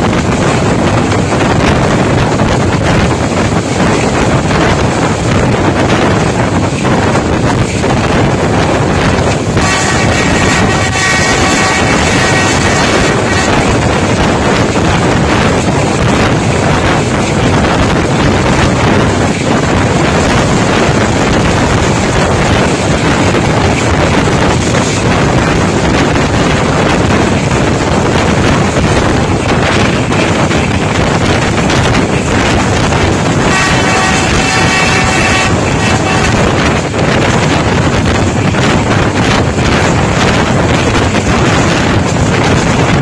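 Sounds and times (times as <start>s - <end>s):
train running noise and wind: 0.0s - 43.0s
train horn chord: 9.6s - 13.8s, 33.4s - 36.7s.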